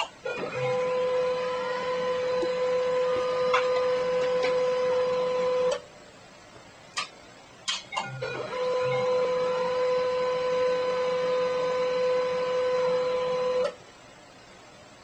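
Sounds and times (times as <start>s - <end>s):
printer motor whine: 0.2s - 5.9s, 8.0s - 13.8s.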